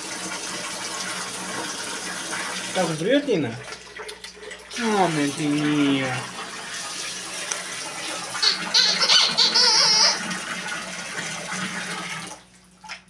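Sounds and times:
water running into bath: 0.0s - 13.0s
short high squeaks: 8.4s - 10.2s.

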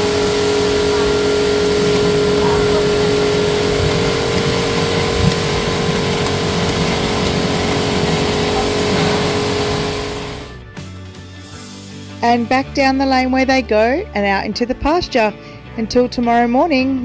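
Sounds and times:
machinery humming and hissing: 0.0s - 10.6s.

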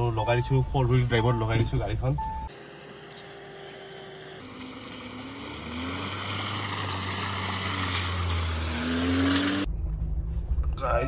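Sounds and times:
vehicle engine revving in mud: 4.4s - 9.7s.

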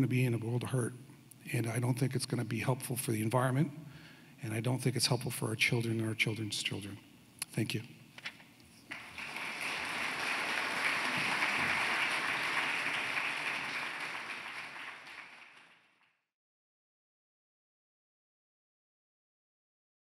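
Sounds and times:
audience applauding: 8.9s - 16.1s.

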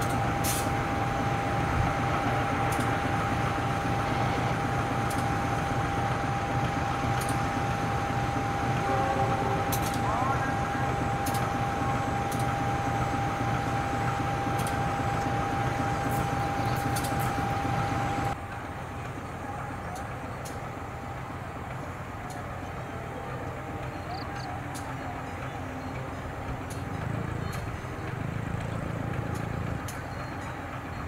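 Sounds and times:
diesel locomotive rumbling: 0.0s - 31.0s
passenger train rumbling: 0.0s - 31.0s
train wheel clicks: 2.0s - 8.9s, 9.6s - 10.0s, 11.1s - 18.6s, 19.2s - 22.9s, 23.7s - 31.0s
steady high tone: 7.6s - 16.6s.

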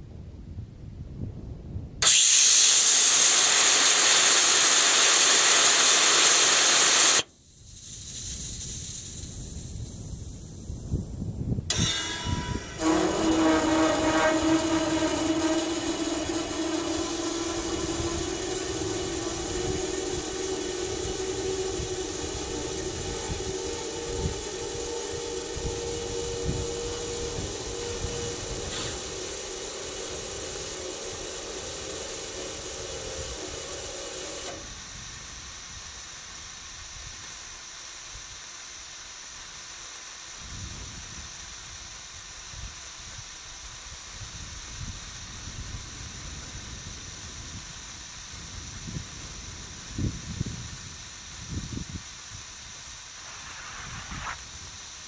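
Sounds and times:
gas hissing: 2.0s - 11.0s, 11.7s - 55.0s
multi-tone hum: 11.6s - 36.6s.

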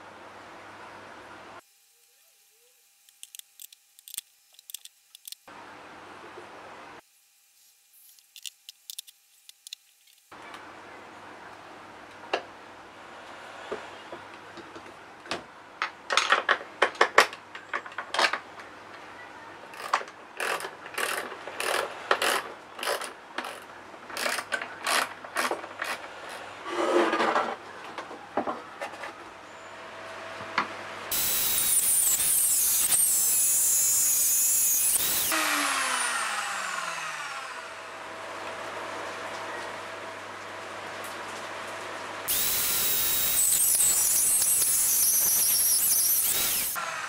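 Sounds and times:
clicks and knocks of handling: 14.2s - 19.0s
drill with hole saw cutting wood: 19.8s - 23.6s, 31.1s - 38.1s, 42.3s - 47.0s
drill winding down whine: 31.1s - 38.1s, 42.3s - 47.0s.

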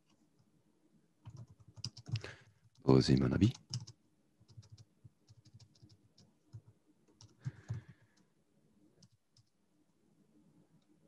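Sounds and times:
typing on computer keyboard: 1.2s - 2.8s, 3.4s - 8.2s, 9.0s - 9.6s.

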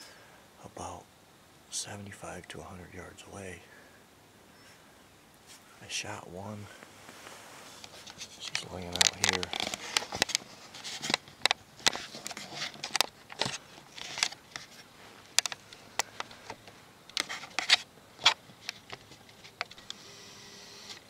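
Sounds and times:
camera handling clicks and scrapes: 7.8s - 20.0s, 20.8s - 21.0s
camera zoom motor whine: 19.8s - 21.0s.

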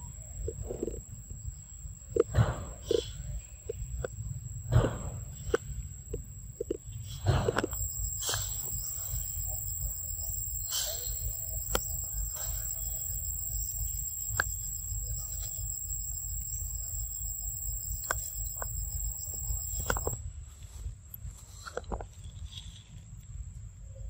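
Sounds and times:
low rumble: 0.0s - 20.6s
high-pitched insect drone: 7.7s - 20.2s.

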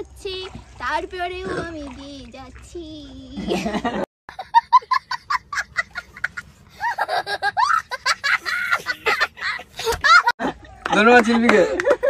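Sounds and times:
child laughing: 3.3s - 10.4s.

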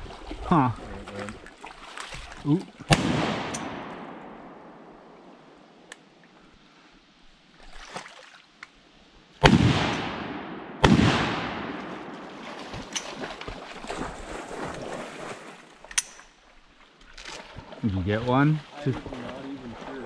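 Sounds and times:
shotgun blasts with echo: 2.9s - 5.0s, 9.4s - 12.4s.

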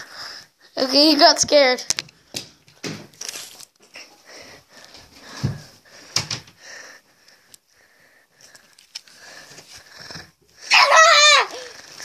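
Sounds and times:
heavy breathing: 0.0s - 0.8s, 3.9s - 10.7s.

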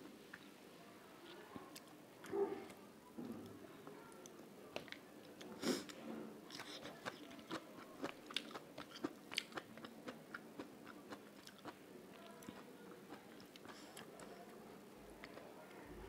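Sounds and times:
food crunching: 6.5s - 14.3s
close chewing with mouth clicks: 6.5s - 14.4s.

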